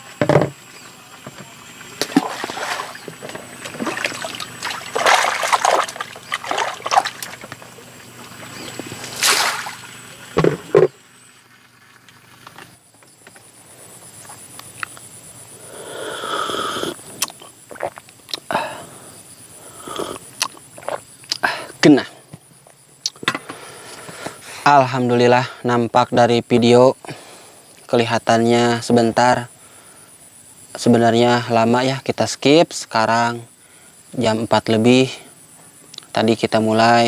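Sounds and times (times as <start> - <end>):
water sloshing and splashing: 2.0 - 10.9.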